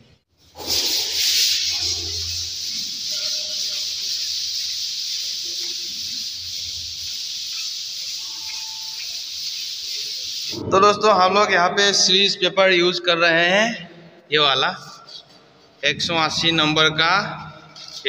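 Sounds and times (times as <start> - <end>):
sandpaper sanding hiss: 0.4 - 11.2, 17.8 - 18.0.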